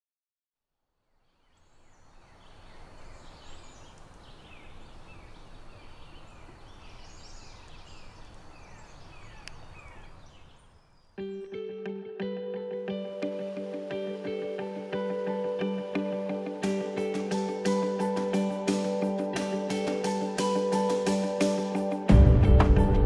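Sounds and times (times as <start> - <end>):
birds calling: 1.3 - 11.3.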